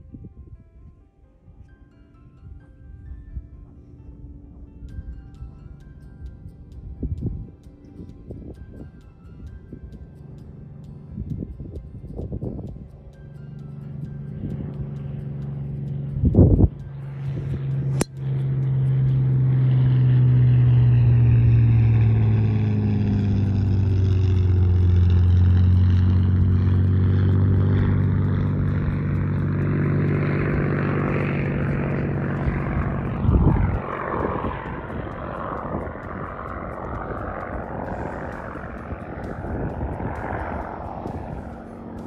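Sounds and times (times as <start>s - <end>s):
propeller aircraft droning: 0.0s - 42.0s
wind buffeting microphone: 2.4s - 10.1s, 10.9s - 13.2s, 15.9s - 18.2s, 18.9s - 42.0s
golf club striking ball: 17.8s - 18.2s.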